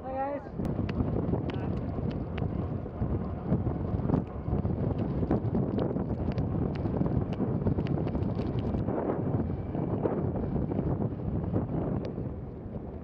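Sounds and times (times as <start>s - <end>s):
road rumble from rolling wheels: 0.0s - 13.0s
wind buffeting microphone: 0.0s - 13.0s
light ticks: 4.1s - 8.9s.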